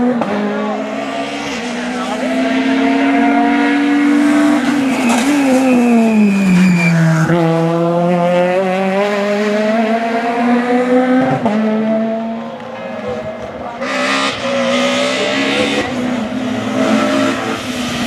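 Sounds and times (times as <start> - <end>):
rally car engine passing: 0.0 - 18.0
tyre squeal: 4.6 - 7.4.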